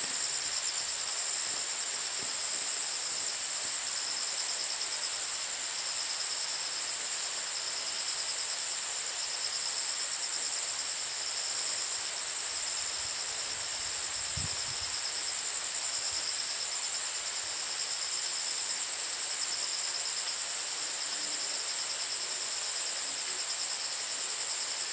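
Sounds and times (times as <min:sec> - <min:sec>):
soft even hiss: 0:00.0 - 0:24.9
pulsing insect trill: 0:00.1 - 0:05.2.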